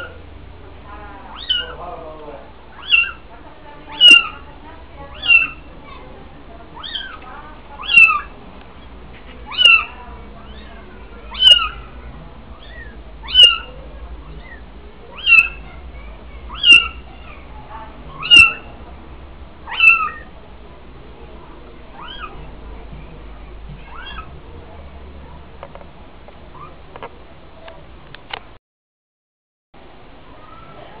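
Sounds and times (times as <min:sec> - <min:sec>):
kittens mewing: 0:01.2 - 0:03.3, 0:03.9 - 0:08.4, 0:09.4 - 0:17.5, 0:18.1 - 0:18.8, 0:19.6 - 0:20.4, 0:21.9 - 0:22.5, 0:23.7 - 0:24.4.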